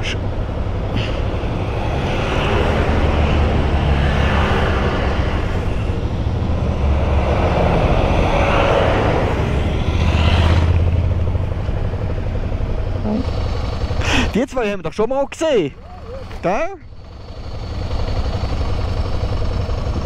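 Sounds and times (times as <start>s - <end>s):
rushing noise: 0.0s - 14.4s
motorcycle engine running: 0.0s - 15.0s, 15.7s - 20.0s.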